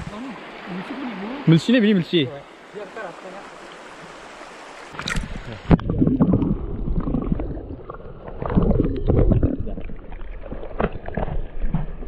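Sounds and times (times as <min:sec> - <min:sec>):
muffled water sloshing: 0:04.9 - 0:12.0.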